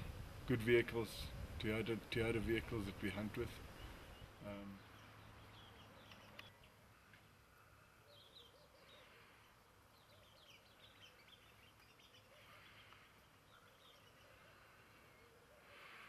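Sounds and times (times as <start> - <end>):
faint bird chirps: 3.6 - 16.0.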